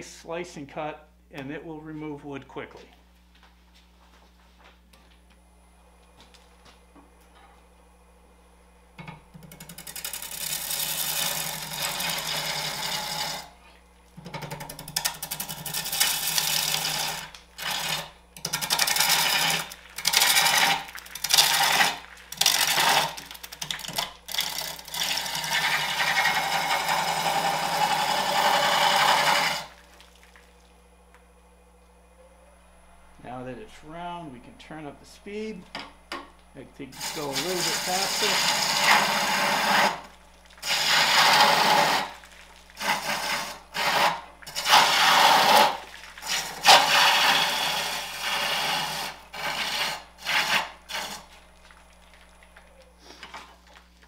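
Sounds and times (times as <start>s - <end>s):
lathe tool cutting wood: 10.0s - 13.5s, 15.4s - 29.8s, 36.9s - 42.2s, 42.8s - 51.3s.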